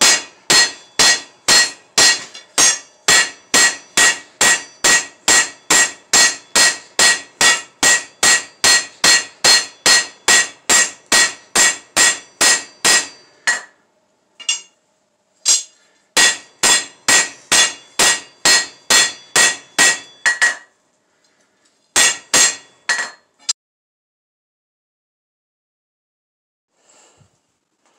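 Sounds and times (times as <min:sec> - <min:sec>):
hammer striking steel on anvil: 0:00.0 - 0:13.8, 0:14.4 - 0:14.8, 0:15.4 - 0:20.7, 0:22.0 - 0:23.6.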